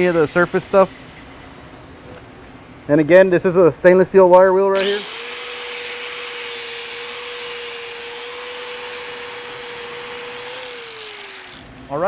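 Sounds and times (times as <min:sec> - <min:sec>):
wire wheel grinder whining: 0:04.8 - 0:12.0.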